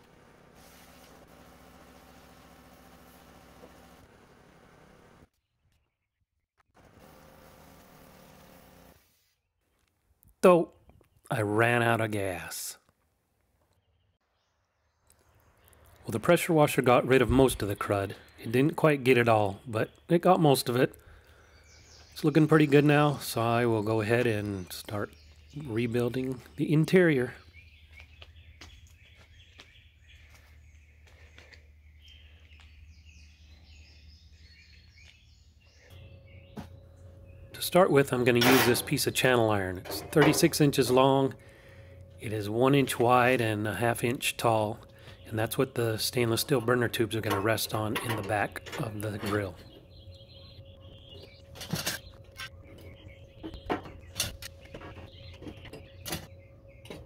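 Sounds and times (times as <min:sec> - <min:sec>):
small birds chirping: 0:09.2 - 0:12.9, 0:13.6 - 0:39.9, 0:40.7 - 0:57.0
faint steady hum: 0:35.8 - 0:48.8.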